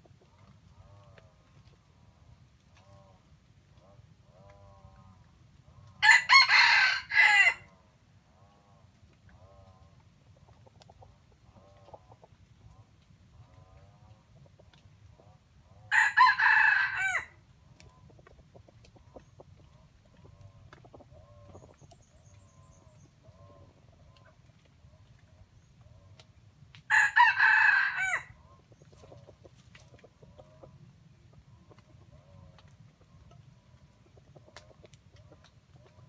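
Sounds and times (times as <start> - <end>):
rooster crowing: 6.0 - 7.7, 15.9 - 17.3, 26.9 - 28.3
soft clucks: 17.7 - 26.3, 28.5 - 36.0.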